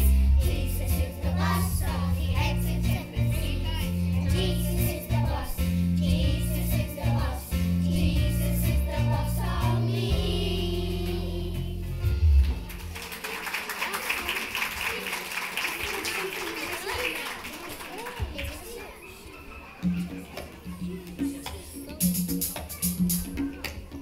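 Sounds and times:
children's choir singing: 0.0 - 11.8
instrumental accompaniment with bass: 0.0 - 13.0.

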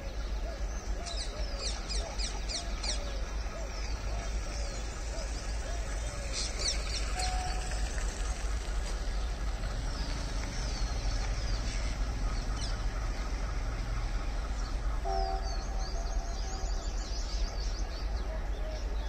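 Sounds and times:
birds chirping: 0.0 - 19.0
train rumbling: 0.0 - 19.0
train horn chord: 7.1 - 8.0, 15.0 - 17.2.

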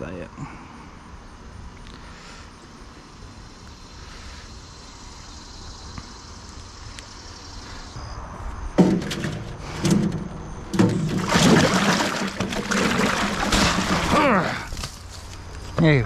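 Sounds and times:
water splashing in metal tub: 8.8 - 14.4.

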